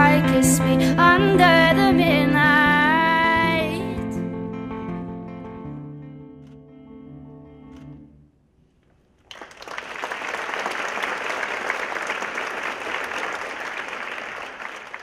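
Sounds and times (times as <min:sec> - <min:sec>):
music: 0:00.0 - 0:08.5
audience applauding: 0:09.2 - 0:15.0.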